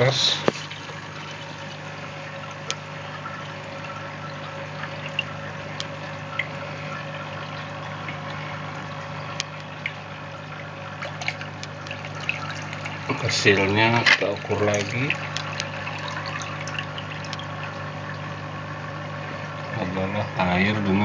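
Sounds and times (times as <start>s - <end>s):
steady low hum: 0.0s - 21.0s
water splashing into plastic bowl: 10.6s - 17.8s.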